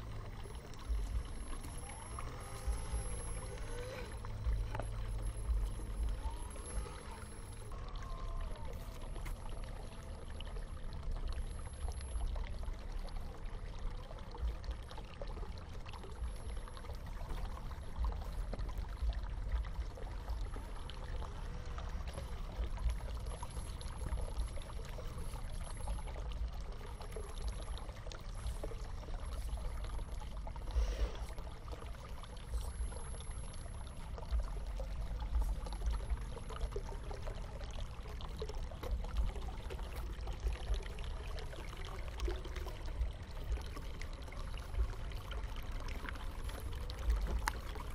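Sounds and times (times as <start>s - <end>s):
faint ticks: 0.0s - 8.0s
low rumble: 0.0s - 47.9s
water running and trickling: 0.0s - 47.9s.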